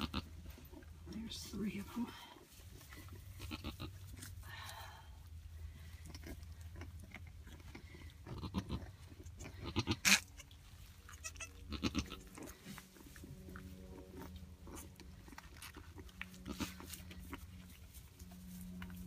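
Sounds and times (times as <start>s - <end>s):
goat calling: 0.0s - 0.3s, 3.3s - 4.0s, 9.5s - 12.4s.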